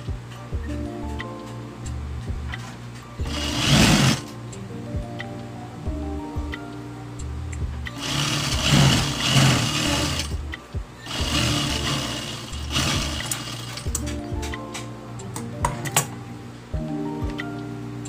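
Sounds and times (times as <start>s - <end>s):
sewing machine stitching: 3.3s - 4.2s, 8.0s - 10.3s, 11.1s - 13.9s.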